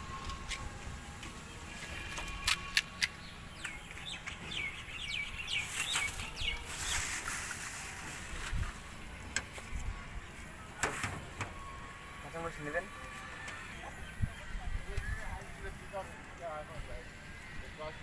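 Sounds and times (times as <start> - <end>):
bird chirping: 2.3 - 7.2
plastic bag rustling: 5.6 - 9.0.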